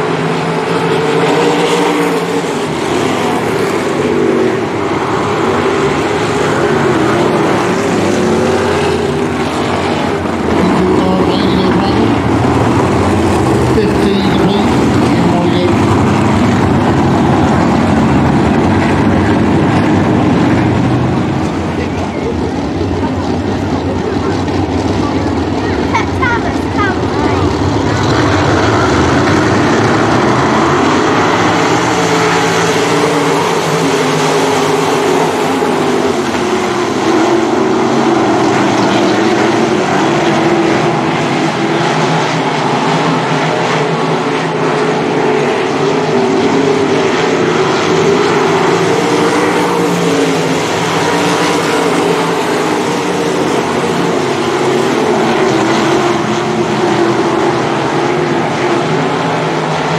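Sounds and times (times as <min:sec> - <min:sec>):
racing car engines: 0:00.0 - 0:59.9.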